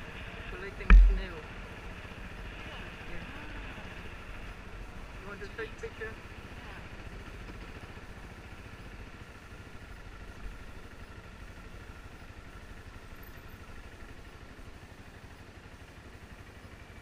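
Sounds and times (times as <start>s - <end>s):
motorbike engine puttering: 0.8s - 1.6s
low knock: 0.9s - 1.3s.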